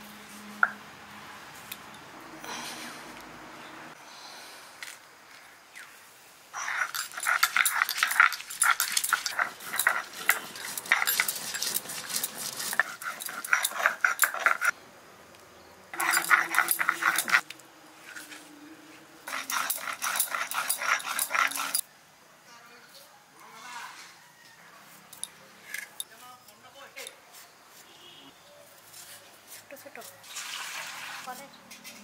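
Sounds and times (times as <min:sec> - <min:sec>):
stone grinding on stone slab: 0:06.6 - 0:14.7, 0:16.0 - 0:17.4, 0:19.3 - 0:21.8.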